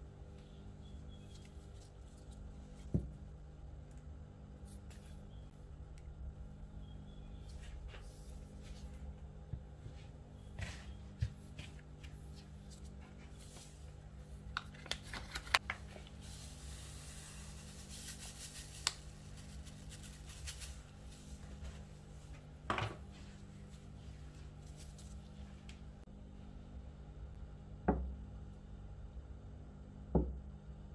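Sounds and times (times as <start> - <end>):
steady low hum: 0.0 - 30.9
powder rustling: 11.4 - 25.6.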